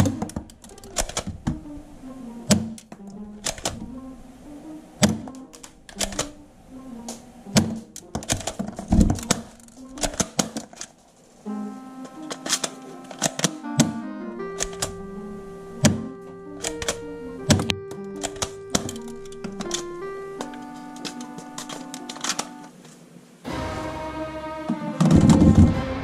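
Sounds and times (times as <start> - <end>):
plastic toy gun clicking: 0.0 - 1.4, 2.5 - 3.8, 5.0 - 6.4, 7.6 - 10.9, 12.3 - 13.6, 16.6 - 17.0, 20.5 - 22.6
background music: 0.0 - 22.8, 23.4 - 26.0.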